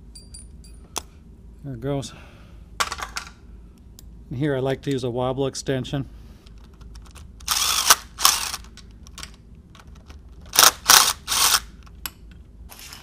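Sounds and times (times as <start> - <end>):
cordless power driver whirring: 7.4 - 8.7, 10.5 - 11.7.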